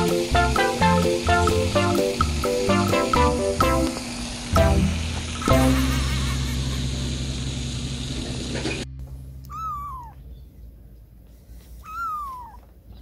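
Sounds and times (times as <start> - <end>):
outdoor background noise: 7.4 - 13.0
kitten mewing: 9.4 - 10.3, 11.8 - 12.7.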